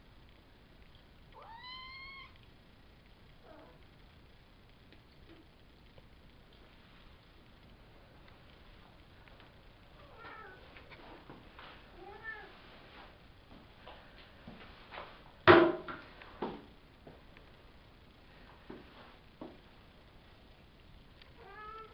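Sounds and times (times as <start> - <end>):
kitten sharp cry: 1.4 - 2.4.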